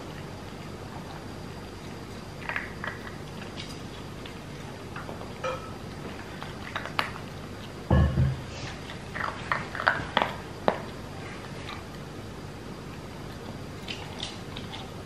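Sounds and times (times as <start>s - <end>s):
dog crunching food: 0.0s - 7.9s, 8.8s - 15.0s
deep knock on bowl: 7.9s - 8.5s.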